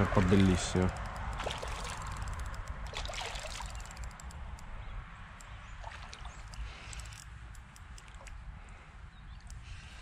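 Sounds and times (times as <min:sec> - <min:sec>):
fish splashing in shallow water: 0:01.2 - 0:04.3, 0:05.6 - 0:07.2.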